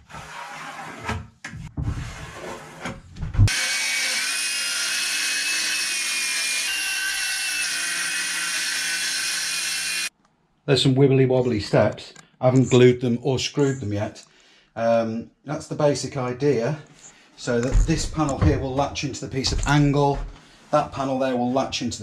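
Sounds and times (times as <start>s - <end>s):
power saw cutting board: 3.5s - 10.1s.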